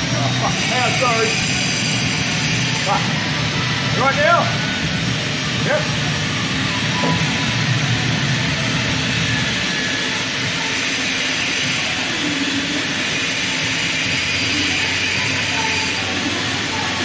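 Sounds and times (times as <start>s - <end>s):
electric arc welding hiss: 0.0s - 4.2s.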